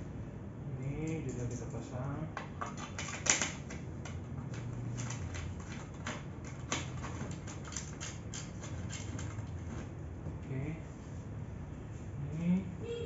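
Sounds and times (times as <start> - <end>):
metallic clicking and clatter: 2.6 - 9.8.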